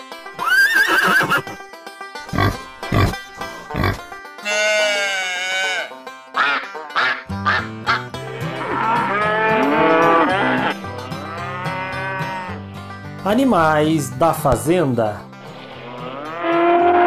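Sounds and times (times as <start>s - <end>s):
animal grunts: 2.3s - 4.1s
cattle mooing: 2.3s - 6.0s, 7.6s - 12.6s, 15.7s - 17.0s
duck quacking: 2.3s - 8.1s.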